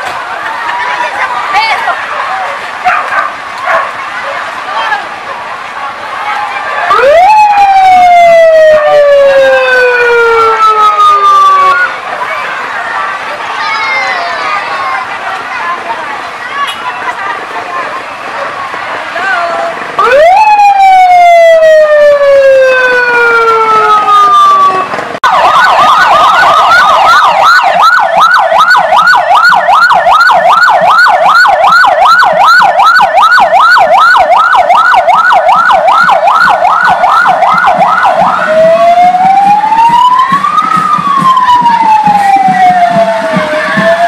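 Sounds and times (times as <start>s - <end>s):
fire truck electronic siren: 6.9s - 12.0s, 20.0s - 44.0s.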